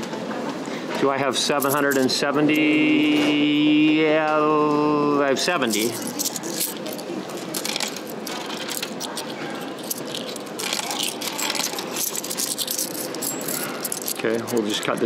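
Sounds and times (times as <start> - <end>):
coins clinking in a palm: 1.5 - 2.1, 5.5 - 15.0
coins dropping into vending machine: 1.5 - 2.2, 5.5 - 15.0.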